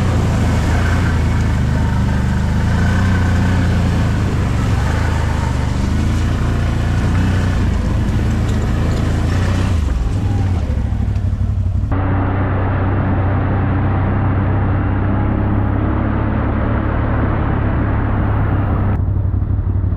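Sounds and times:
tyres on gravel: 0:00.0 - 0:11.9
atv engine running: 0:00.0 - 0:19.9.

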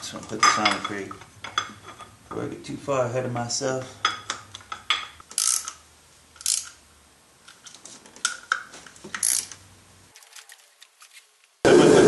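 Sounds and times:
hand ratchet clicking: 0:05.3 - 0:05.8, 0:06.4 - 0:06.8, 0:09.2 - 0:09.6.

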